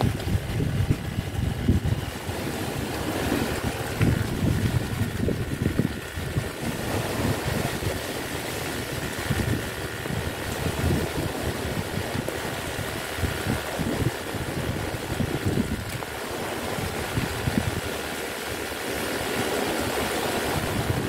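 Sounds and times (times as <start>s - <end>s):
rough sea washing: 0.0s - 21.0s
wind buffeting microphone: 0.0s - 21.0s.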